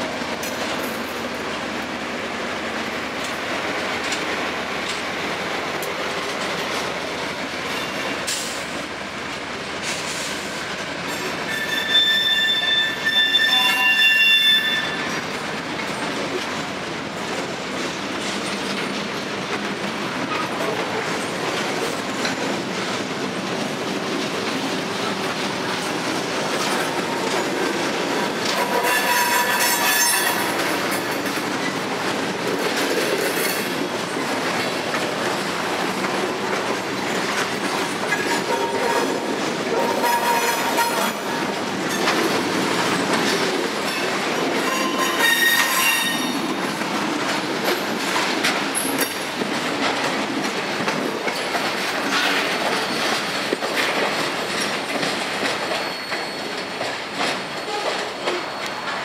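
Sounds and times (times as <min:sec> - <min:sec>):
freight train rolling past: 0:00.0 - 0:59.0
wheels clacking over rail joints: 0:00.0 - 0:59.0
high-pitched wheel squeals: 0:11.5 - 0:15.1, 0:44.7 - 0:46.4, 0:55.7 - 0:56.6.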